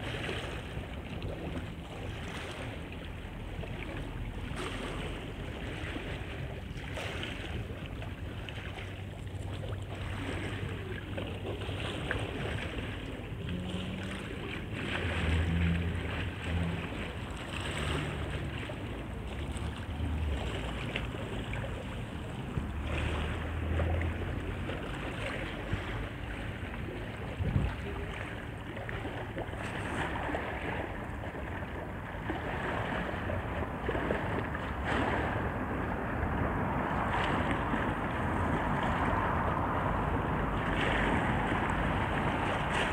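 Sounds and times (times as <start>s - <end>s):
river water splashing: 0.0s - 42.9s
wind on microphone: 19.9s - 29.0s, 29.6s - 42.9s.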